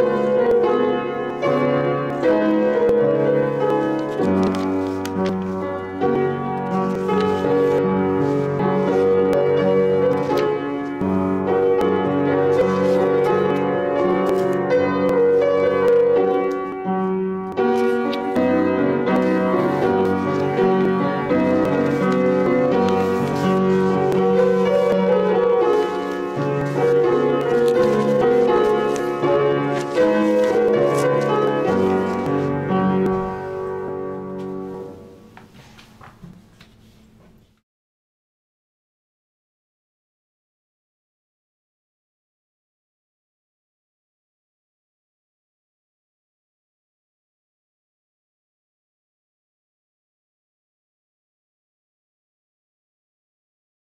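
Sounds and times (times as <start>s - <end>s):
piano playing held chords: 0.0s - 35.4s.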